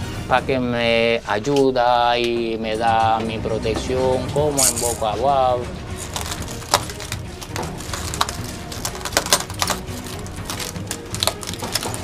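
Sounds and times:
feet crunching broken glass: 0:06.0 - 0:12.0.

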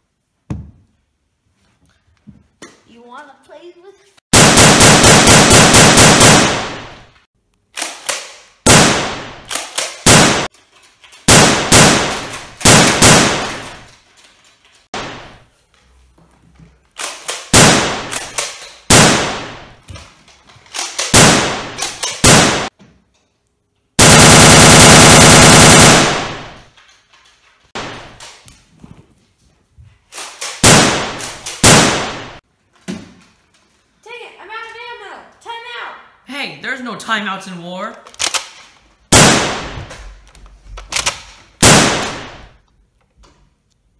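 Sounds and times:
automatic gunfire bursts: 0:04.3 - 0:07.0, 0:08.7 - 0:10.5, 0:11.3 - 0:13.8, 0:17.5 - 0:19.6, 0:21.0 - 0:22.7, 0:24.0 - 0:26.7, 0:30.6 - 0:32.4, 0:41.6 - 0:42.5.

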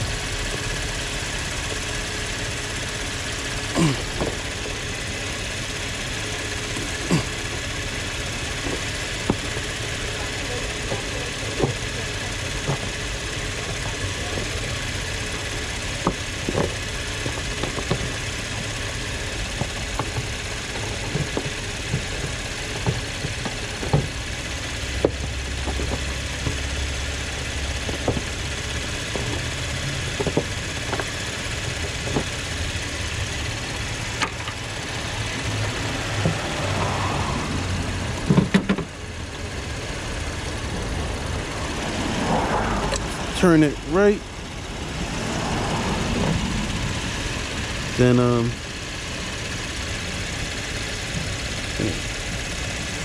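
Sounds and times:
engine hum: 0:00.0 - 0:53.0
plastic clicks and knocks: 0:30.2 - 0:31.1, 0:38.3 - 0:38.9.

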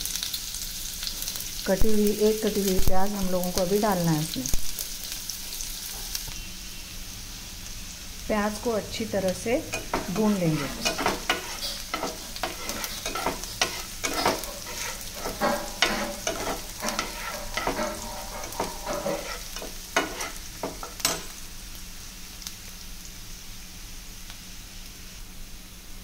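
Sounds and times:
onions sizzling in oil: 0:00.0 - 0:26.0
metal spatula scraping pan: 0:09.7 - 0:21.4.

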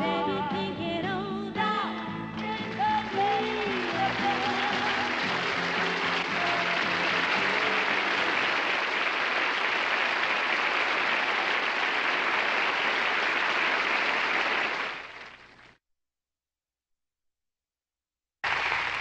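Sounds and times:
band playing: 0:02.6 - 0:08.8
audience applauding: 0:02.6 - 0:15.8, 0:18.4 - 0:19.0.

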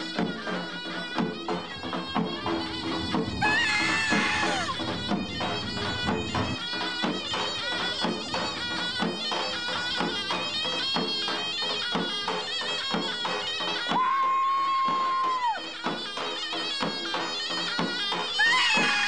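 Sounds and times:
drum beats: 0:00.0 - 0:19.0
shrill zurna melody: 0:00.5 - 0:11.3, 0:18.2 - 0:19.0.

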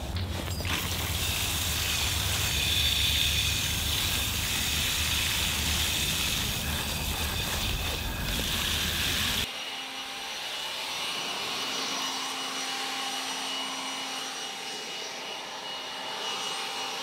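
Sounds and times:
hose spraying water onto soil: 0:00.6 - 0:09.4.

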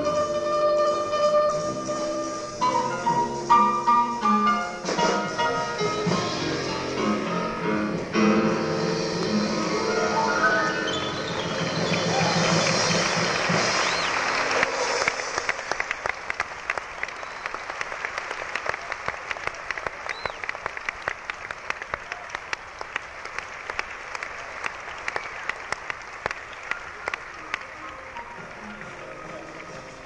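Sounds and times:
audience applause: 0:09.0 - 0:30.0.

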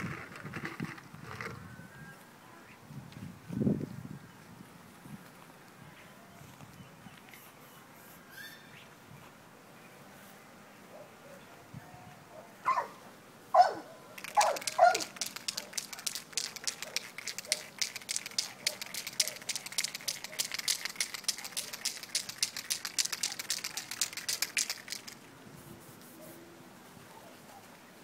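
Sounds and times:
rattle of sharp clicks: 0:14.2 - 0:25.3.

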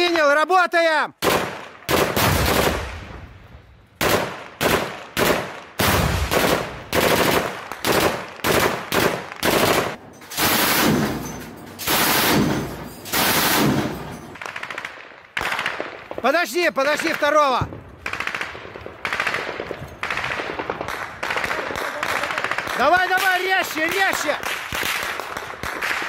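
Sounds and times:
automatic gunfire bursts: 0:01.2 - 0:02.9, 0:04.0 - 0:16.0
gunshots: 0:01.2 - 0:26.0.

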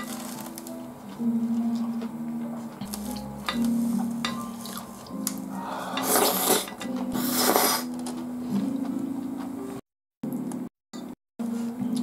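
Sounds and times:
person slurping spaghetti: 0:05.9 - 0:07.9.

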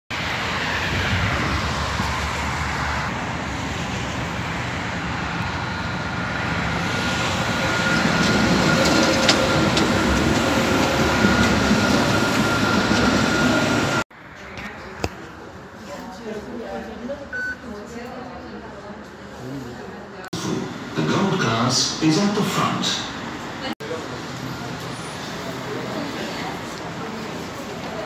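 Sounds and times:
tram running rumble: 0:00.1 - 0:14.0.

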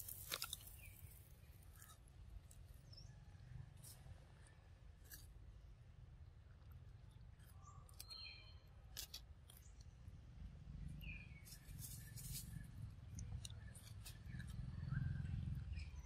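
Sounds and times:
bird chirps: 0:07.5 - 0:08.7, 0:11.0 - 0:16.0.

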